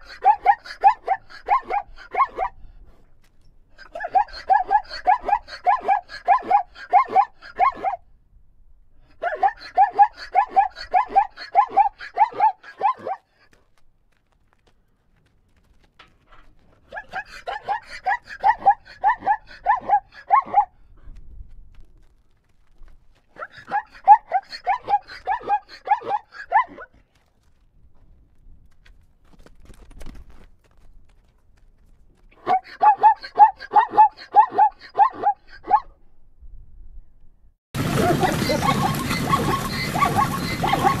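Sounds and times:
zebra calling: 0.0 - 2.5, 3.8 - 8.0, 9.2 - 13.2, 37.8 - 41.0.

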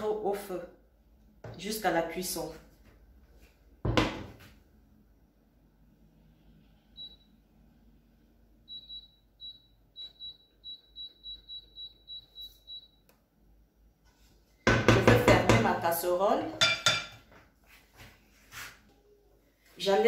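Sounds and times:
hob touch control beeps: 8.7 - 13.1
metal cookware clattering: 16.6 - 17.3.

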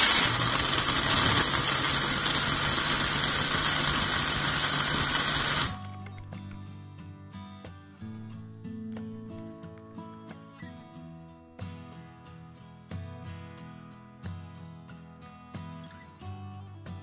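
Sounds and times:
blender motor whirring: 0.0 - 6.0
background music: 5.8 - 17.0.

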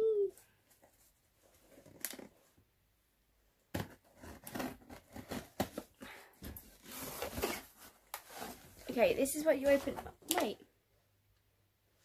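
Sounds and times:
cardboard scraping and rustling: 3.8 - 10.2.

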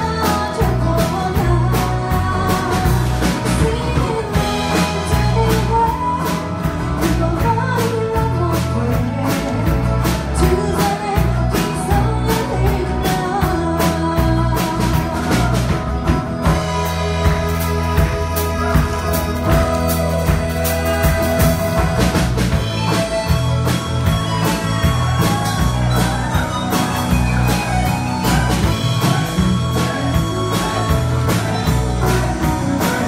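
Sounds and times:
woman singing: 0.0 - 15.8, 28.7 - 33.0
live band playing: 0.0 - 33.0
steady drum beat: 0.0 - 33.0.

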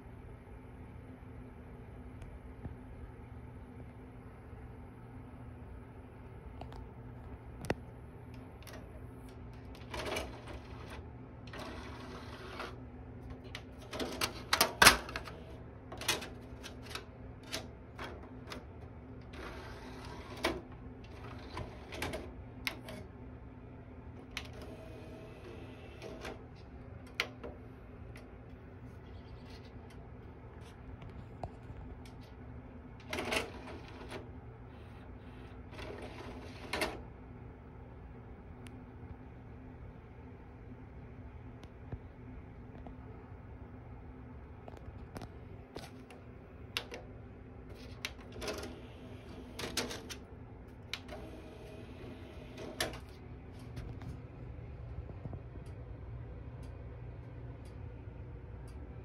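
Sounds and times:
disc tray clicks and clunks: 6.6 - 23.1, 24.2 - 28.4, 31.0 - 35.0, 35.6 - 37.1, 44.7 - 47.1, 47.7 - 54.2.

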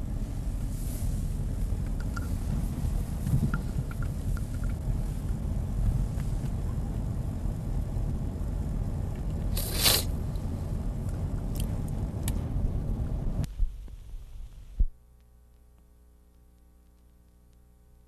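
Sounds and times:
car cabin road rumble: 0.0 - 14.9
loud hiss: 9.5 - 10.2.

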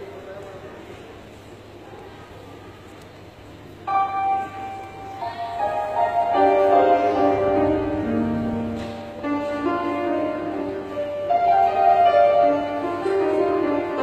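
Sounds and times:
keyboard playing slow chords: 3.9 - 14.0.

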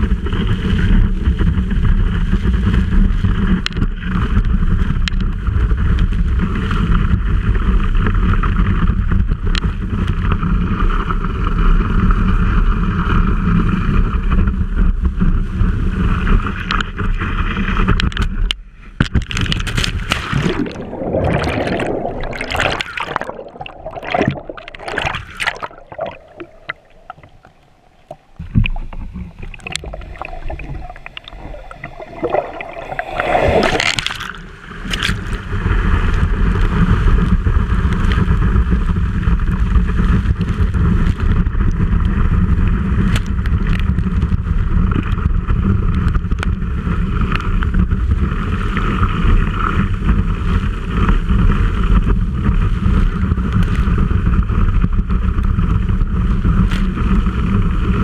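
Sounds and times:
water rushing against camera: 0.0 - 58.0
water sloshing and gurgling: 16.2 - 58.0.

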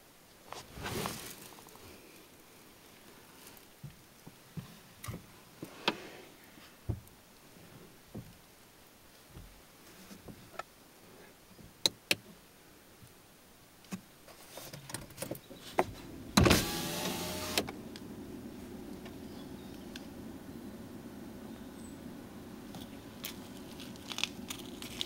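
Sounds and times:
electric window motor whirring: 16.0 - 22.7.

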